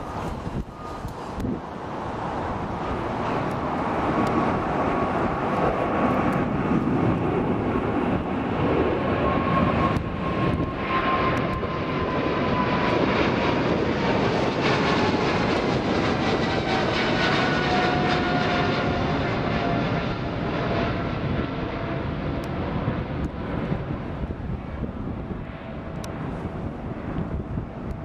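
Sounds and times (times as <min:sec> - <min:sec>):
jet whine falling in pitch: 0:00.0 - 0:20.3
jet airliner roar overhead: 0:00.0 - 0:28.0.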